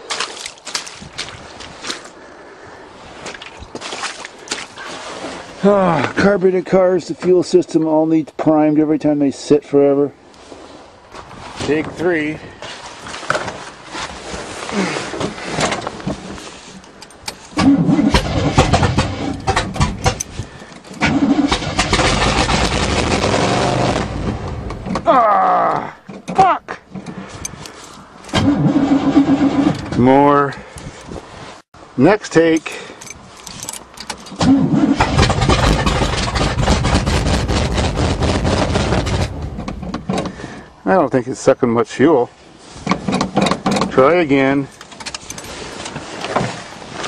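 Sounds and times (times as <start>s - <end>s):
starter cranking engine: 17.3s - 25.0s, 27.0s - 30.1s, 32.6s - 40.4s.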